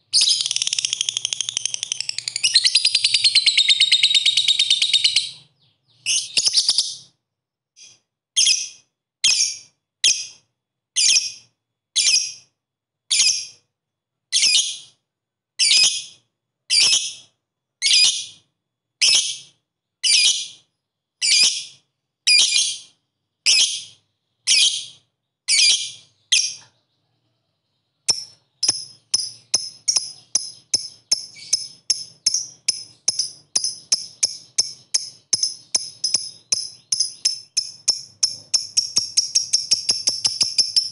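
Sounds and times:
lovebird shrill chirps: 0.1 - 7.1, 23.5 - 26.6, 28.0 - 40.9.

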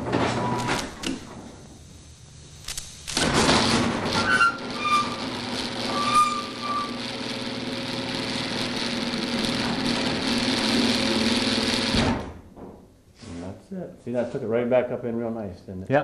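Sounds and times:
garage door opener motor humming: 0.0 - 1.6, 2.7 - 12.4
short squeaks: 4.1 - 7.2.

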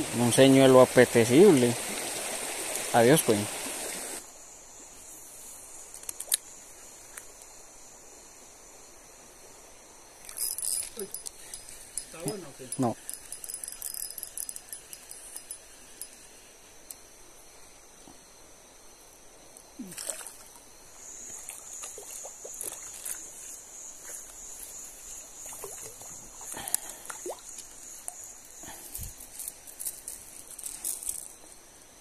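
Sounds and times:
water splashing and sloshing: 19.8 - 28.2.

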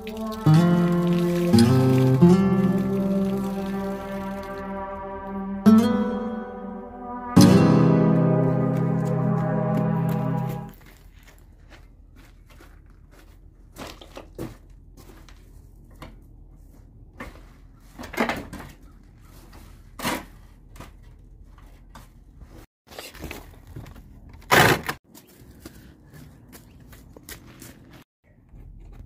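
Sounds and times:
footsteps on dry debris: 8.6 - 15.9.

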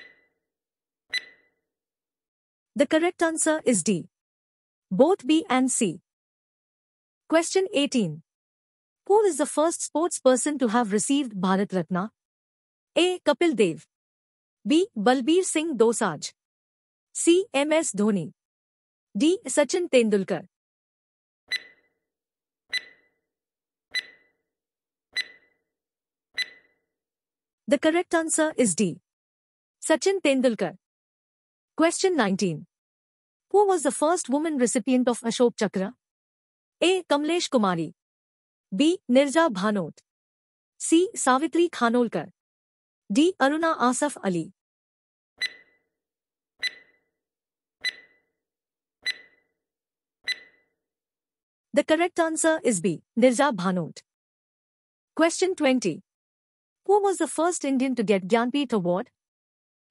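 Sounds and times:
countdown timer ticking: 1.1 - 1.4, 21.5 - 21.8, 22.7 - 23.0, 23.9 - 24.2, 25.2 - 25.4, 26.4 - 26.7, 46.6 - 46.9, 47.8 - 48.1, 49.0 - 49.3.

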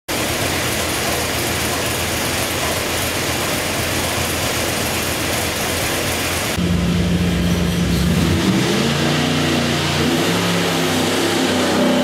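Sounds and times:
engine exhaust note: 6.2 - 12.0.

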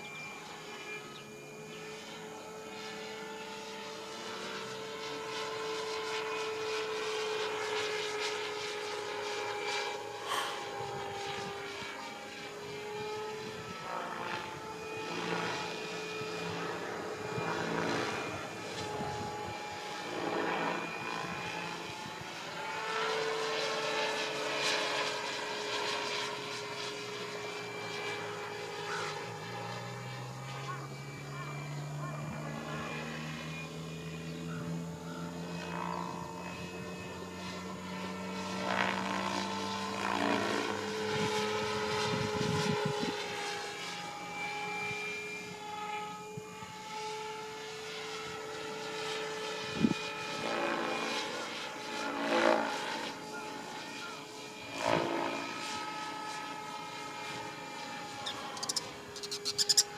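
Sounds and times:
model helicopter motor whine: 0.0 - 59.9
rushing rotor noise: 3.2 - 22.3, 56.4 - 59.9.

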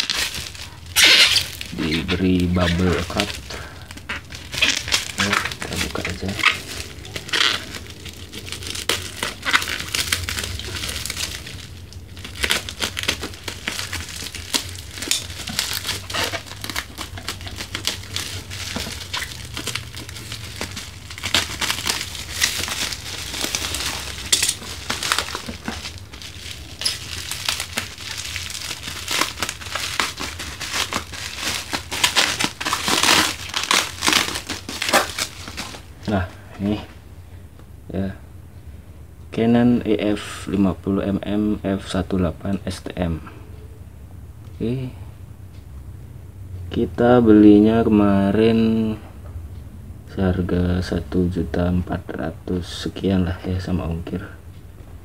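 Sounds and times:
bubble wrap crinkling: 0.0 - 36.9.

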